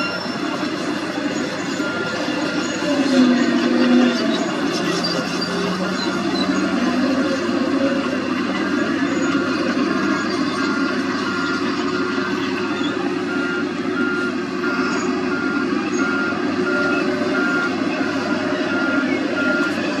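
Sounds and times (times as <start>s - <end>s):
diesel engine running: 0.0s - 20.0s
reversing alarm beeping: 0.0s - 20.0s.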